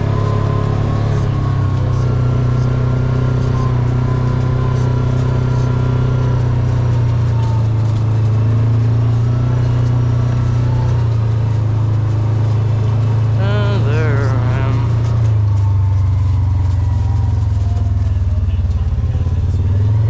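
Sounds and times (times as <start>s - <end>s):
vehicle engine droning: 0.0s - 20.0s.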